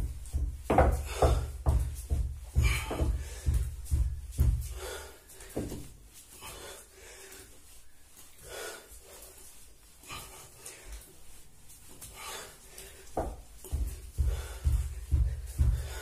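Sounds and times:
bare feet thudding on floor: 0.0 - 6.7, 11.7 - 16.0
person breathing heavily: 0.0 - 16.0.

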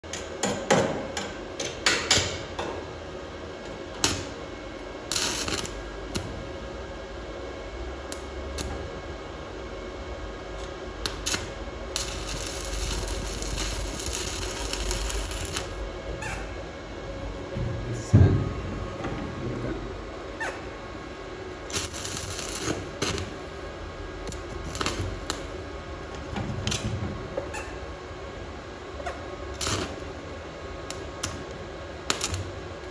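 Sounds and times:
welding arc cracking: 5.1 - 6.3, 11.0 - 15.8, 21.6 - 23.6, 24.2 - 25.6, 29.5 - 30.1, 30.9 - 32.6.

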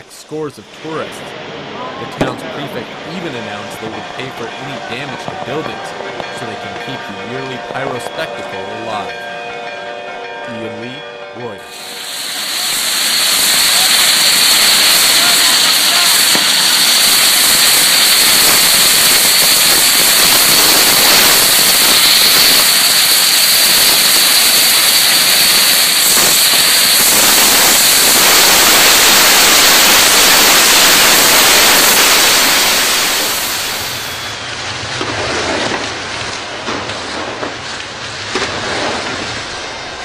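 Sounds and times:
rockets firing with rushing hiss: 11.7 - 40.0.

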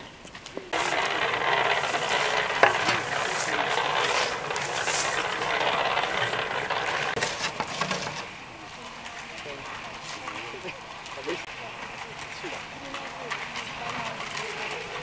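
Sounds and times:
shovel scooping sand: 0.7 - 8.3
concrete mixer rattling grind: 0.7 - 15.0.

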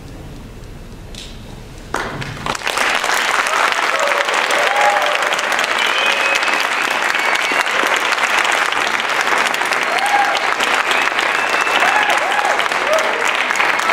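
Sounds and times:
audience clapping: 1.9 - 13.9
voices cheering: 2.8 - 13.9.

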